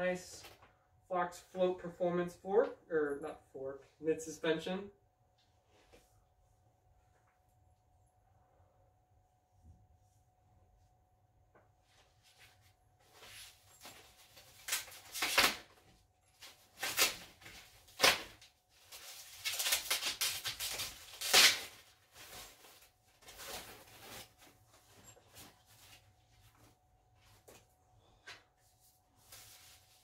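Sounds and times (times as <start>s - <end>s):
packing material rustling: 12.4s - 27.5s.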